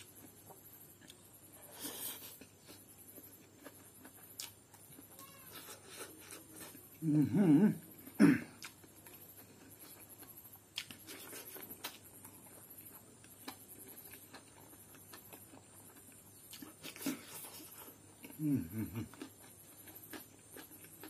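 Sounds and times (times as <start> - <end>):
wet chewing and lip smacks: 2.2 - 5.0, 8.6 - 18.4
man humming with full mouth: 7.0 - 8.4, 18.4 - 19.2.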